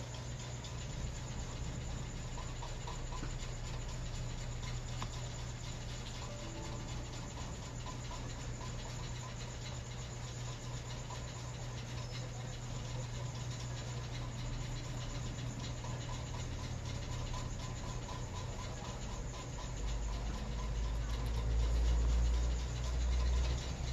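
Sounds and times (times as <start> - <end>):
low hum: 0.0 - 9.3.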